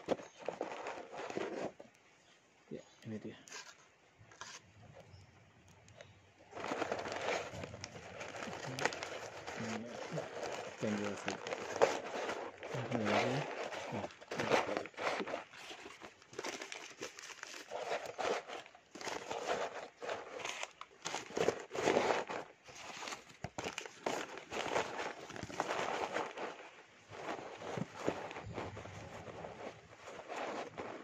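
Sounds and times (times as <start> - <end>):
packing wrap crinkling: 6.5 - 31.0.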